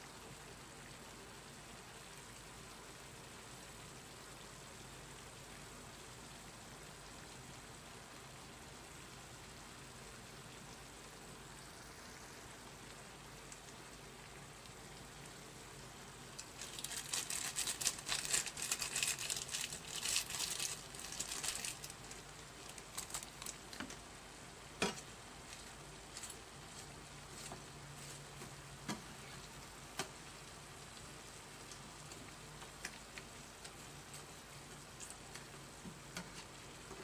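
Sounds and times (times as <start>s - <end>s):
pork sizzling in a frying pan: 0.1s - 37.0s.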